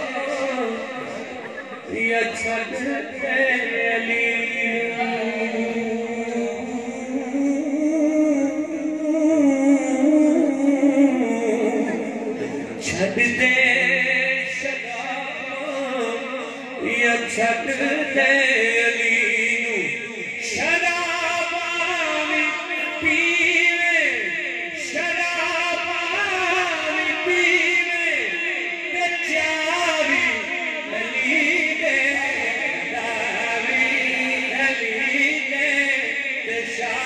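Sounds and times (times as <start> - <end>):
men singing unaccompanied: 0.0 - 12.0, 29.3 - 37.0.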